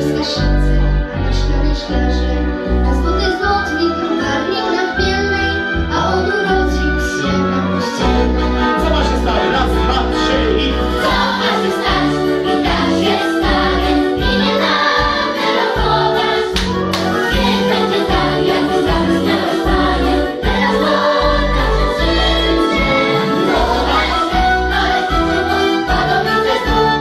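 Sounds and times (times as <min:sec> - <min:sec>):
instrumental accompaniment: 0:00.0 - 0:27.0
children's choir singing: 0:11.0 - 0:27.0.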